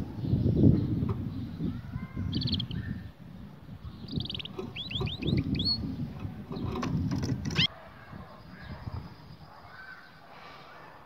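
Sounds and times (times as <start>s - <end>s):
canary singing: 0.2s - 3.2s, 3.8s - 9.9s.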